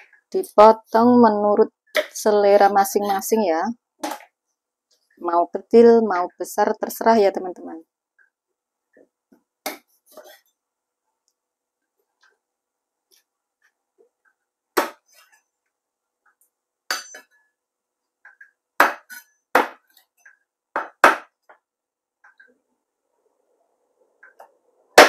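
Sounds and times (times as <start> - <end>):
knife chopping on wooden block: 18.8 - 19.8.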